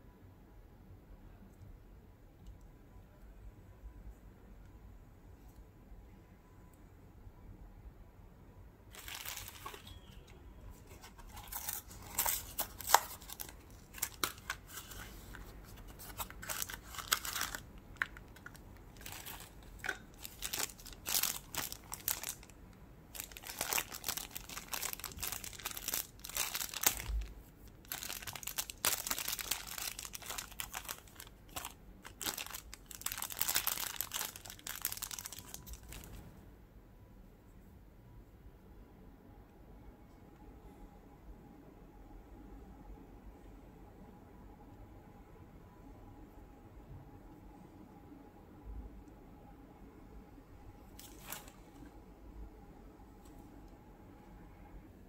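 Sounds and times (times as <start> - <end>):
plastic bag crinkling: 8.9 - 10.0, 10.8 - 36.2, 51.0 - 51.8.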